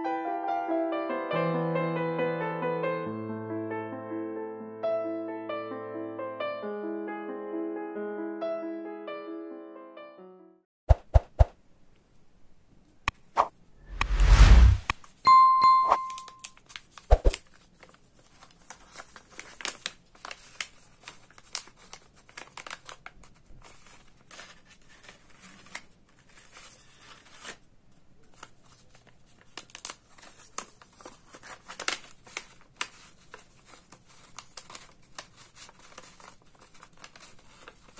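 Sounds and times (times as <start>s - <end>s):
paper rustling and crinkling: 16.5s - 37.9s.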